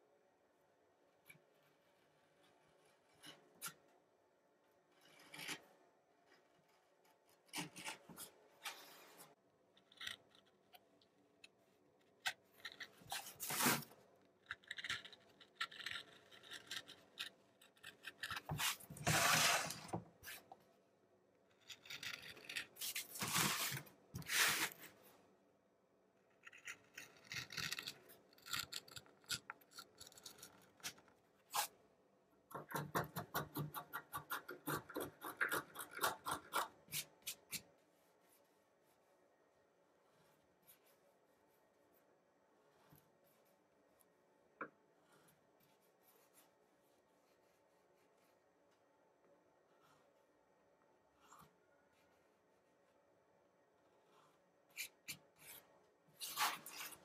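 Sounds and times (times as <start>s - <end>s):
carving tools scraping wood: 12.3s - 20.5s, 26.3s - 31.7s, 32.6s - 37.7s.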